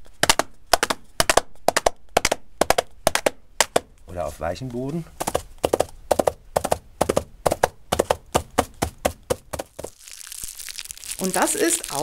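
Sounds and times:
muffled hoofbeats on soft ground: 0:00.2 - 0:09.9
plastic film crinkling: 0:09.7 - 0:12.0.

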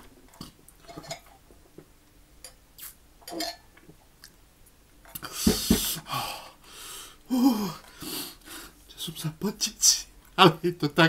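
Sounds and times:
person sipping: 0:02.8 - 0:03.0.

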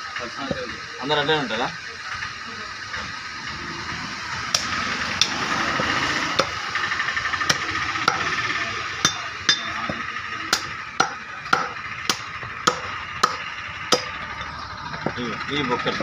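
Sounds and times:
steady background noise: 0:00.0 - 0:16.0
cleaver chopping meat on wood: 0:07.5 - 0:08.3, 0:09.1 - 0:14.1.

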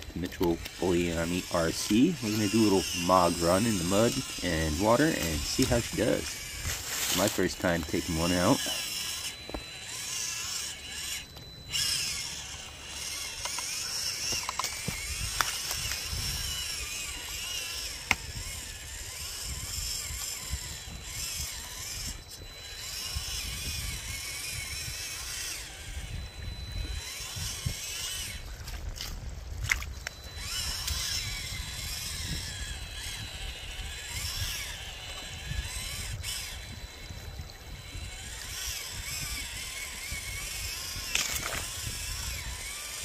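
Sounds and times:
steady high tone: 0:00.0 - 0:18.2
small electric motor whining: 0:00.0 - 0:43.0.

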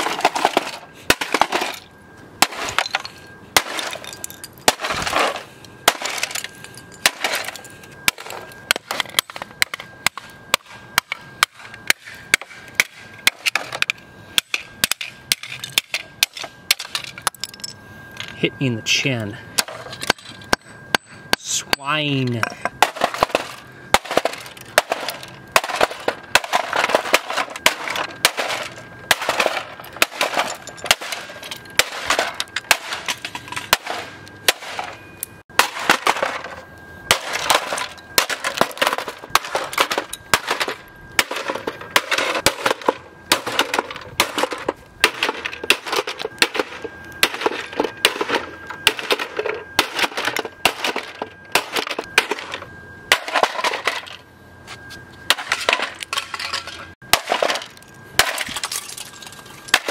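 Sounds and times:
thin high tone: 0:00.0 - 0:59.9
plastic pieces clattering: 0:55.4 - 0:59.9.

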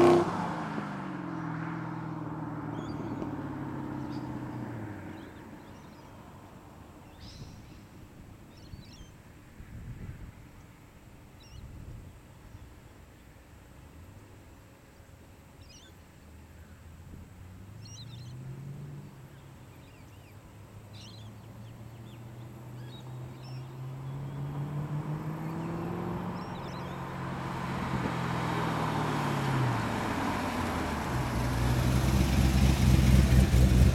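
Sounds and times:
car engine accelerating past: 0:00.0 - 0:05.8, 0:17.4 - 0:20.0, 0:20.9 - 0:33.9
birds chirping faintly: 0:10.5 - 0:30.7.

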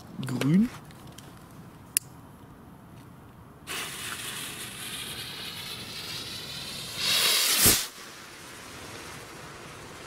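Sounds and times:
rocket fuse hissing: 0:03.7 - 0:10.0.

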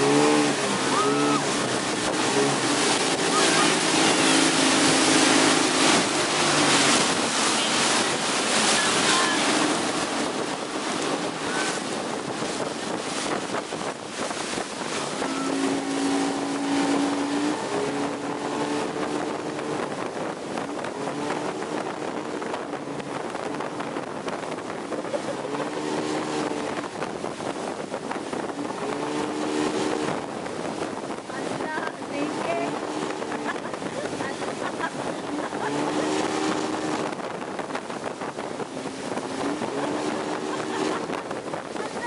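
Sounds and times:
churning wake: 0:00.0 - 0:42.0
outboard motor running: 0:00.0 - 0:42.0
wind buffeting microphone: 0:00.0 - 0:42.0.

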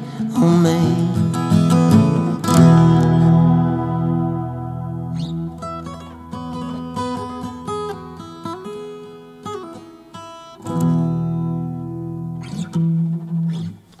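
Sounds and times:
acoustic guitar playing: 0:00.0 - 0:14.0.

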